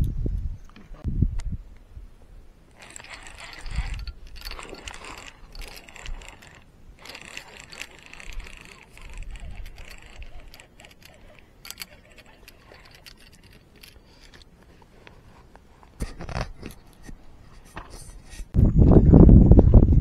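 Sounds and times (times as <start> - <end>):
fishing reel clicking and whirring: 2.7 - 14.5.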